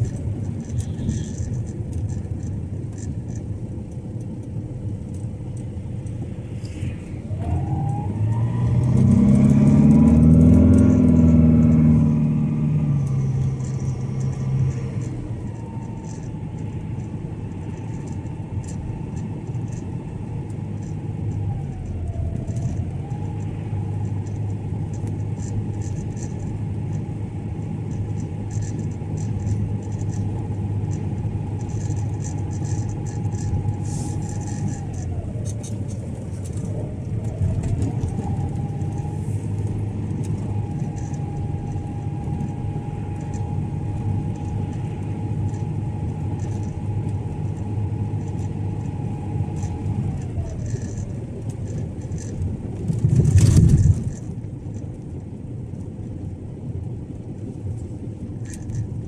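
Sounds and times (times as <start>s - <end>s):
car engine and tyre rumble: 0.0s - 59.0s
engine note climbing and falling: 5.4s - 16.7s.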